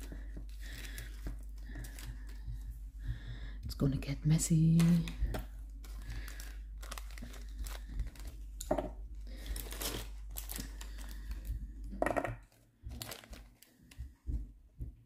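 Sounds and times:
plastic bag crinkling: 0.0 - 2.5, 4.4 - 14.0.

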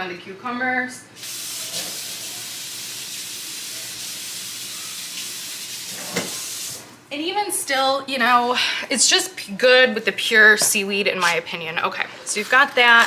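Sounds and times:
water running from tap: 1.2 - 7.0.

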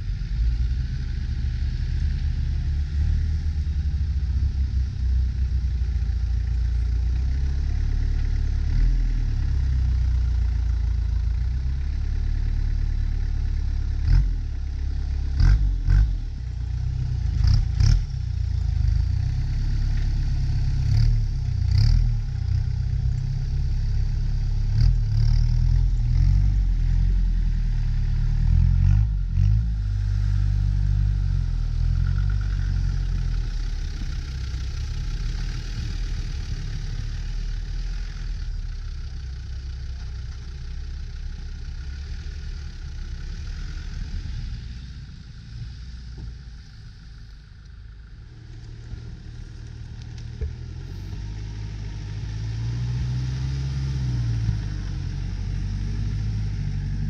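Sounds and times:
off-road engines revving: 11.4 - 47.3, 48.0 - 57.0.

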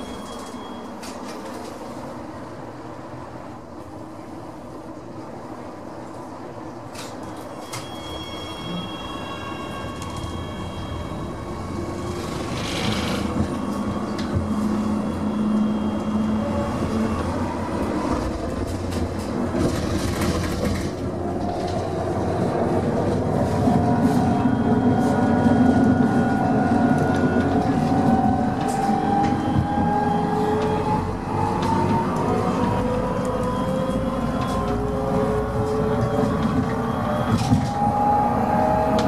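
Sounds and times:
tram rumbling on rails: 0.0 - 39.0
traction drive whine: 7.0 - 39.0.

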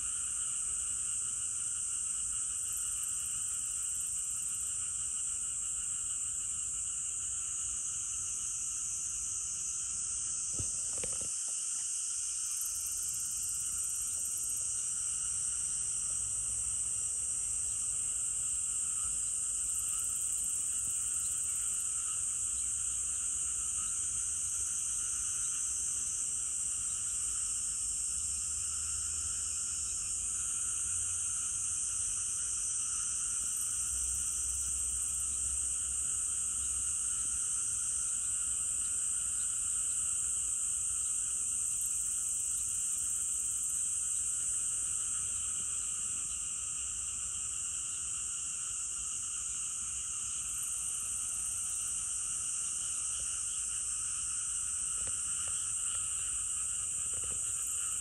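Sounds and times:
high-pitched insect buzz: 10.2 - 16.6.

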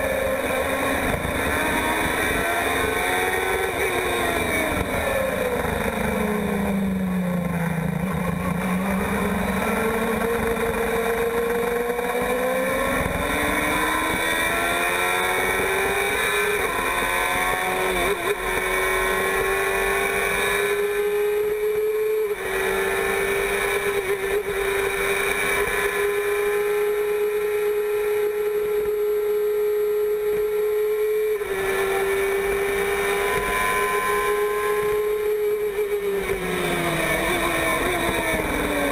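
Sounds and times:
race car engine at high revs: 0.0 - 38.9.

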